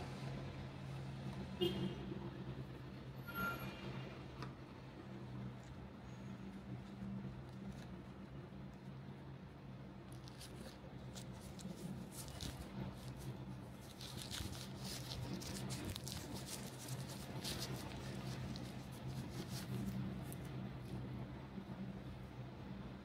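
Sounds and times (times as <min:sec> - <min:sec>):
wrapper crinkling and rustling: 0:10.1 - 0:20.4.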